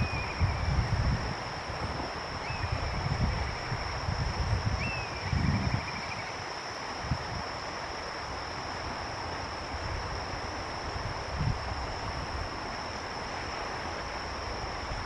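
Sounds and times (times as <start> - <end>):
bird of prey whistled call: 0.0 - 0.7
high insect drone: 0.0 - 15.0
wind rumble on microphone: 0.0 - 15.0.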